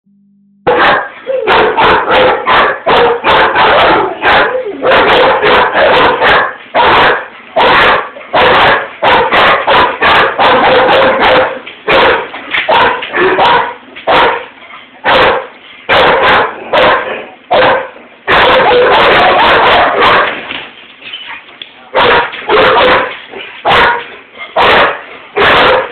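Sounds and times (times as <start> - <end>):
dogs barking: 0.7 - 20.5, 21.3 - 25.9.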